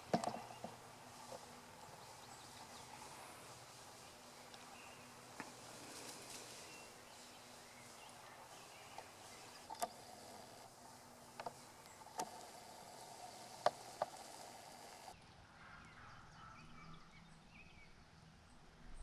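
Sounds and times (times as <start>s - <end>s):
faint background hiss: 0.0s - 16.0s.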